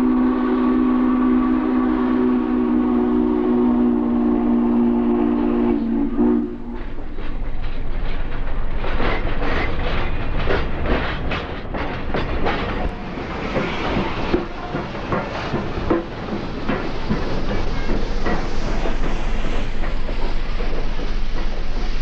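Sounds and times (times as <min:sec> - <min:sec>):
steam whistle blast: 0:00.0 - 0:06.8
steam locomotive chugging: 0:00.0 - 0:22.0.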